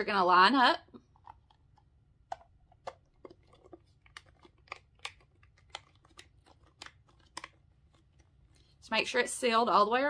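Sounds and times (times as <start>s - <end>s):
plastic parts clicking and tapping: 1.1s - 8.3s.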